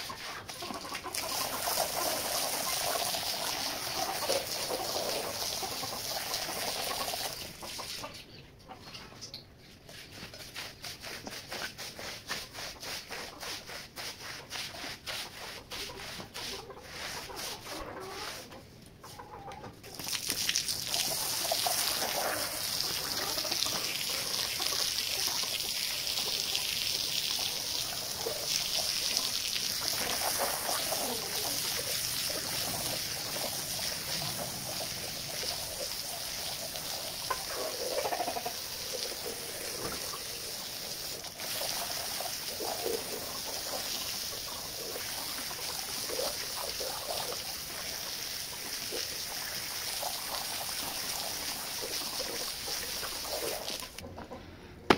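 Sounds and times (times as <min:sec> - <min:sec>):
hose water spraying on rug: 0:20.0 - 0:54.0.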